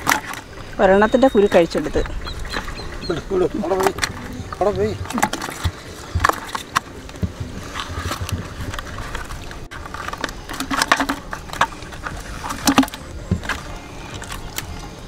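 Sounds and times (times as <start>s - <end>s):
fishing net rustling and crackling: 0.0s - 15.0s.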